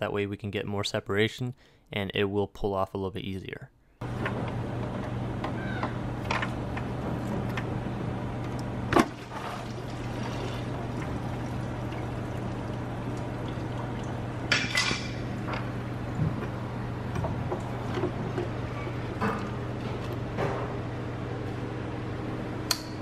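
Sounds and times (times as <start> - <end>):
coolant splashing out: 8.9 - 15.3.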